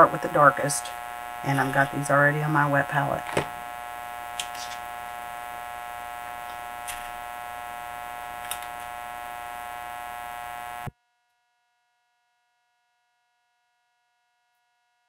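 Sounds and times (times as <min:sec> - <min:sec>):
steady electrical buzz: 0:00.0 - 0:10.9.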